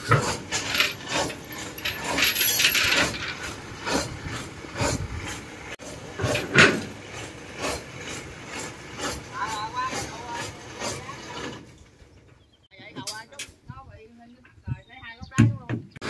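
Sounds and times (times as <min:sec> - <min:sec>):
rasping scrape: 0:00.0 - 0:11.8
ropes and ramp scraping: 0:00.0 - 0:12.5.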